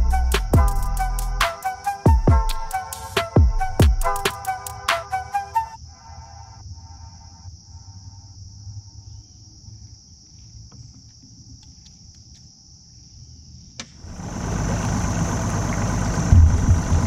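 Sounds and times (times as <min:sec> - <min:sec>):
insects droning: 0:00.0 - 0:17.0
loud rumble and hiss: 0:14.0 - 0:17.0
low rumble: 0:14.1 - 0:17.0.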